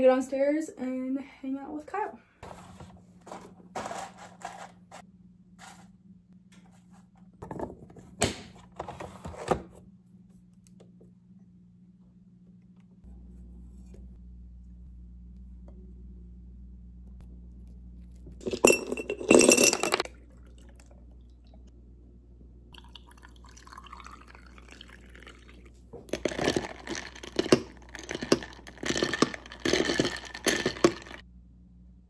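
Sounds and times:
ice clinking in glass jar: 18.4s - 20.7s, 22.8s - 31.2s
liquid pouring: 18.4s - 21.7s, 22.8s - 31.2s.

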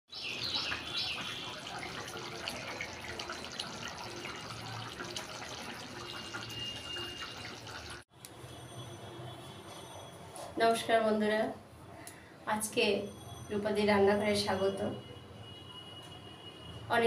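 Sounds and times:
curry bubbling and popping: 0.2s - 8.1s.

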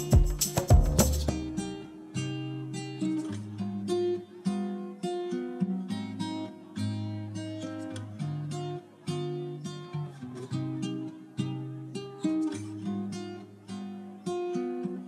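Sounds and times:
music with strong regular beat: 0.0s - 1.6s
acoustic guitar music: 0.0s - 15.0s.

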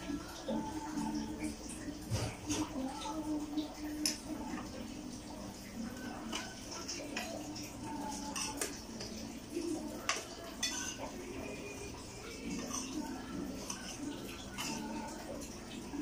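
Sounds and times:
cutlery clinking on china plates: 8.2s - 9.2s, 10.0s - 11.2s, 12.4s - 15.0s.

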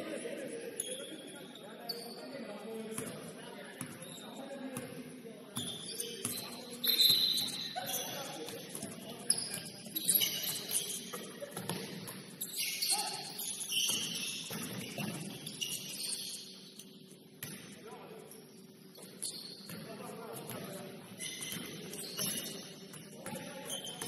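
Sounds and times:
shoes squeaking on court: 5.6s - 17.0s, 18.9s - 24.0s.

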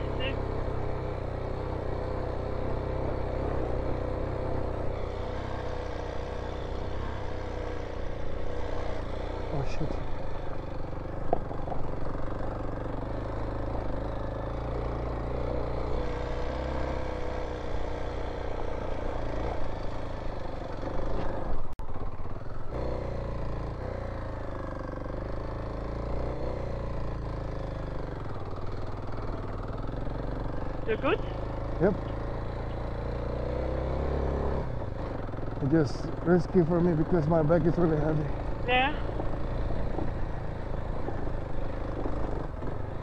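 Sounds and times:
motorcycle engine under load: 0.0s - 43.0s.

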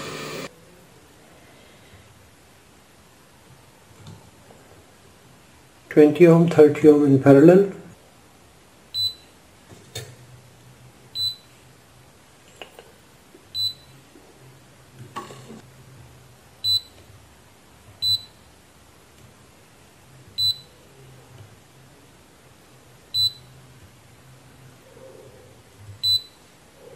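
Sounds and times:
multimeter short high beeps: 9.0s - 9.3s, 11.2s - 11.5s, 13.6s - 13.9s, 16.6s - 17.0s, 18.0s - 18.4s, 20.4s - 20.7s, 23.2s - 23.5s, 26.0s - 26.4s.

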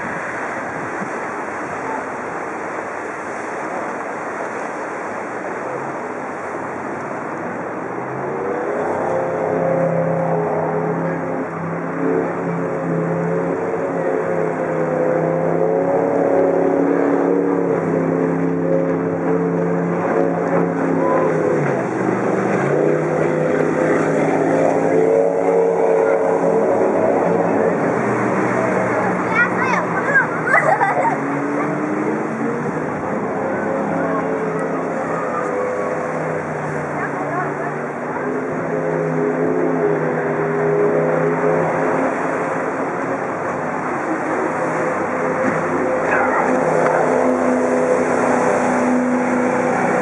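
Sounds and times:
churning wake water: 0.0s - 50.0s
outboard engines running: 0.0s - 50.0s
churning water hiss: 34.8s - 50.0s.

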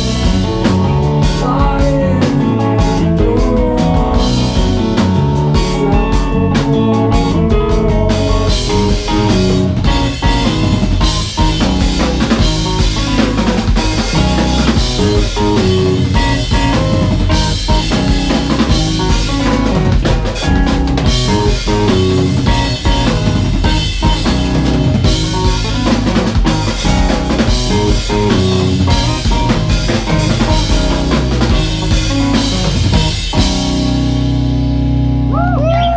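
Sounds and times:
busy drumming on drum kit: 0.0s - 35.1s
electric guitar: 0.0s - 35.9s.

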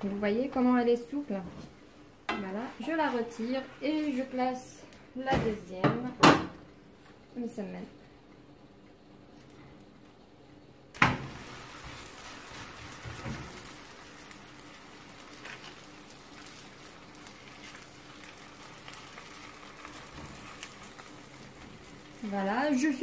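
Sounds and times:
dough sizzling on griddle: 11.0s - 23.0s.

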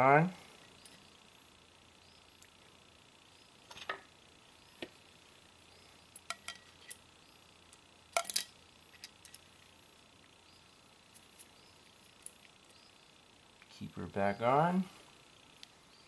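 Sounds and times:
small metal parts clinking: 8.1s - 9.5s.

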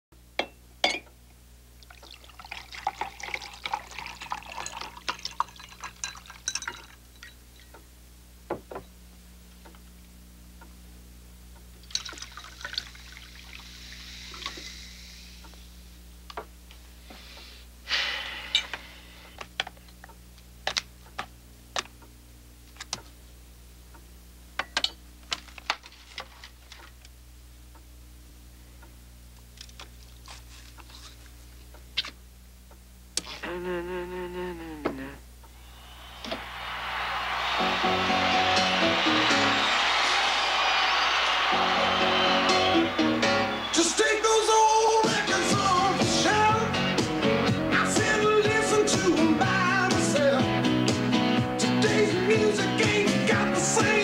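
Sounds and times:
glass and utensil clicks: 0.4s - 1.1s
cola pouring and fizzing: 1.8s - 7.0s, 11.9s - 14.6s
liquid poured over ice: 1.9s - 7.0s, 11.9s - 13.7s
ice clinking in glass: 2.2s - 7.7s, 11.9s - 12.9s.

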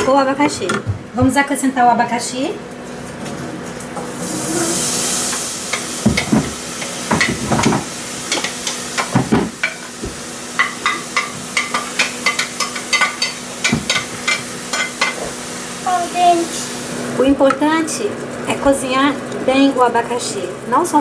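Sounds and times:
fruit hissing in hot syrup: 4.1s - 6.0s
spoon stirring and scraping pot: 10.6s - 15.2s.

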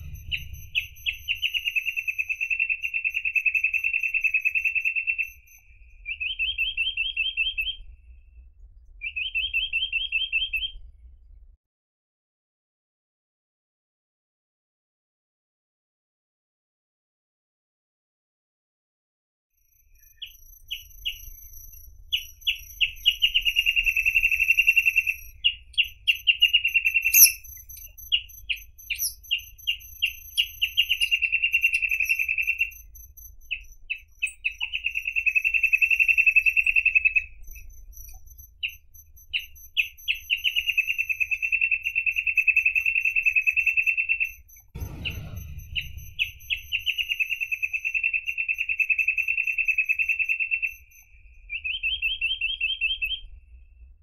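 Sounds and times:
bird singing fast trills: 0.0s - 7.8s, 20.0s - 44.6s, 51.5s - 53.3s.

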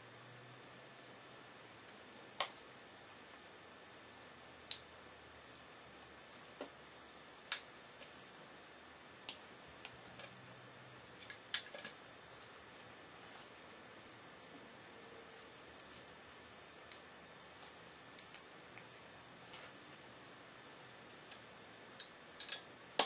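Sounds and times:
plastic bricks clicking together: 22.0s - 23.0s.

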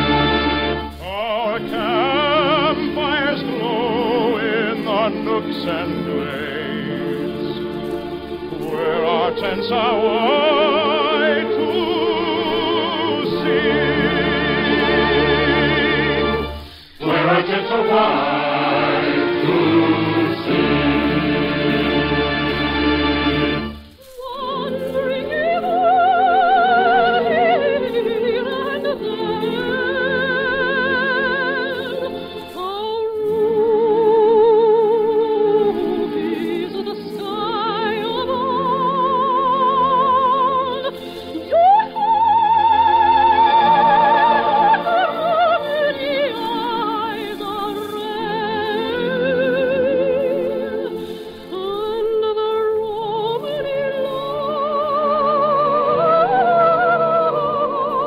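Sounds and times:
orchestra playing slow melody: 0.0s - 58.0s
soprano singing: 0.0s - 58.0s
choir and orchestra chord: 1.9s - 23.8s.

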